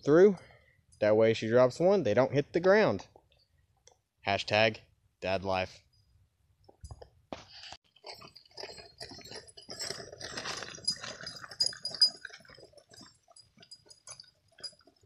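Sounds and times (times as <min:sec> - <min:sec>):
footsteps on gravel: 0:07.4 - 0:11.4
stroller wheels crunching on gravel: 0:07.9 - 0:13.0.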